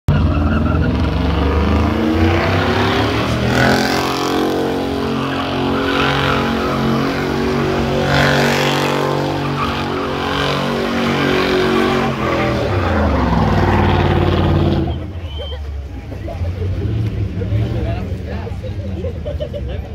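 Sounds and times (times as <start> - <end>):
tires screeching on asphalt: 0.1 - 18.8
engine at high revs: 0.2 - 15.1.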